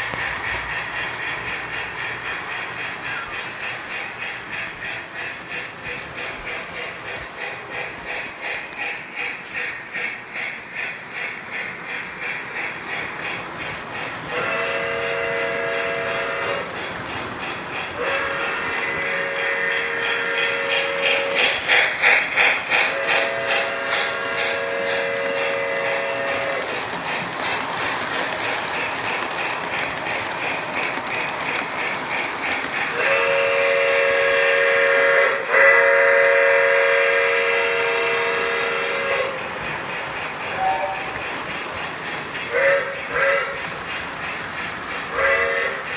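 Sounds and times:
model steam locomotive chuffing: 0.0 - 45.9
steam whistle: 14.3 - 16.7, 18.0 - 21.5, 22.8 - 26.7, 32.9 - 39.5, 42.5 - 43.6, 45.1 - 45.9.

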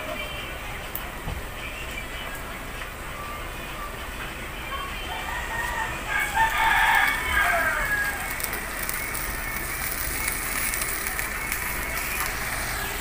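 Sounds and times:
shrimp sizzling in a wok: 5.4 - 13.0.

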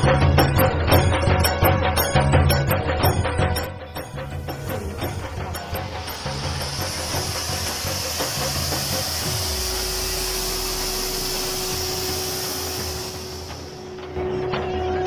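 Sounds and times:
firework fountain hissing: 4.1 - 14.2.

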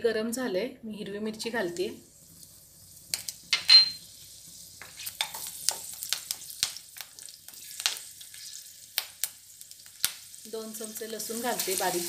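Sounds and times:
chillies sizzling in hot oil: 1.3 - 12.0
wooden spatula stirring: 4.8 - 5.9.

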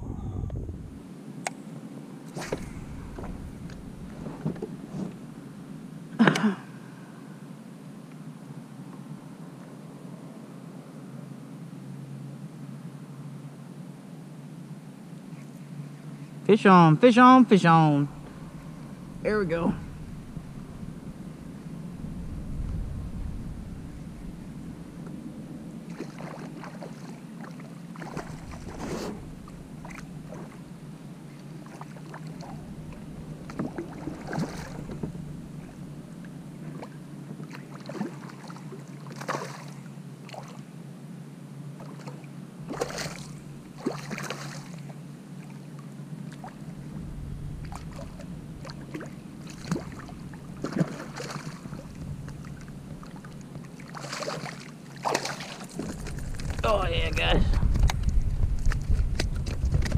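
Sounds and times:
water lapping against kayak hull: 2.3 - 5.4, 25.8 - 40.7, 41.7 - 59.9
fish thrashing and splashing: 25.9 - 29.1, 31.7 - 35.0, 41.9 - 44.8, 47.7 - 56.6.

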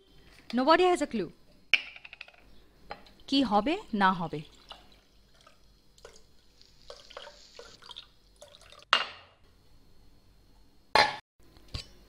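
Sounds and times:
dishes knocking and clinking: 8.9 - 9.4.

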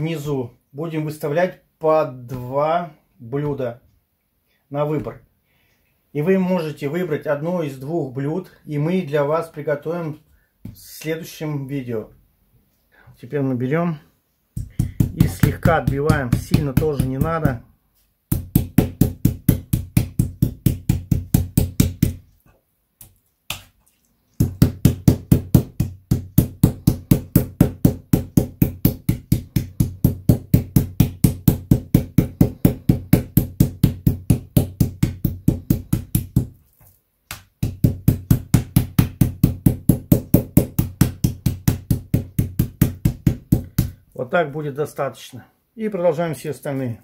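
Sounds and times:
mallet pounding meat on board: 14.6 - 17.6, 18.3 - 22.2, 24.4 - 36.6, 37.3 - 44.0.

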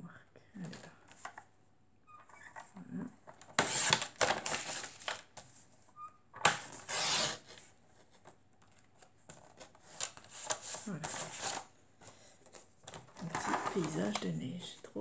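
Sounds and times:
paper trimmer blade cutting paper: 3.6 - 4.7, 6.7 - 7.4
paper rustling: 6.7 - 14.8.

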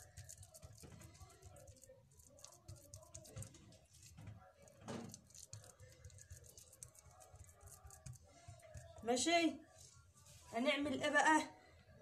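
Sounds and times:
hands patting meat filling: 0.0 - 9.2.

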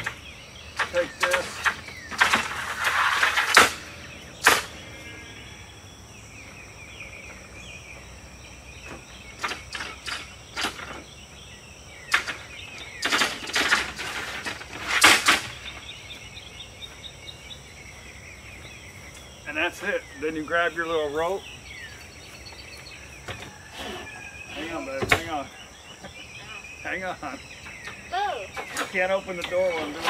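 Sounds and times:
birds chirping: 0.0 - 30.0
insects humming: 0.0 - 30.0.

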